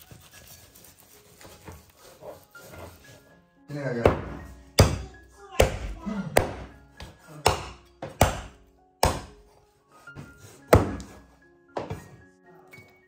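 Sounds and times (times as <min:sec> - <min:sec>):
background music: 0:00.0 - 0:13.0
heavy blade chopping meat and bone: 0:04.0 - 0:09.4, 0:10.7 - 0:11.2.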